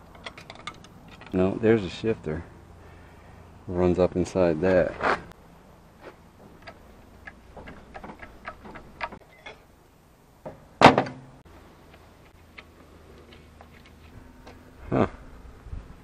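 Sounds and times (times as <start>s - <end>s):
metal tools clicking and tapping: 0.0s - 1.4s, 6.5s - 9.6s.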